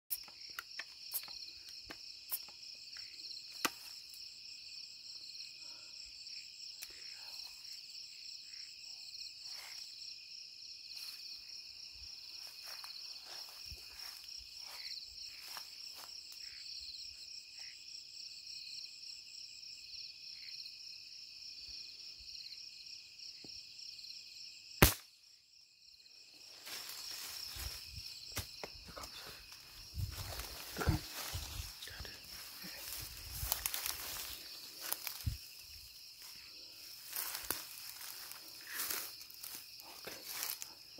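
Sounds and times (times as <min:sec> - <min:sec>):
night insects chirring: 0:00.1 - 0:40.9
sharp loud click: 0:24.8 - 0:25.1.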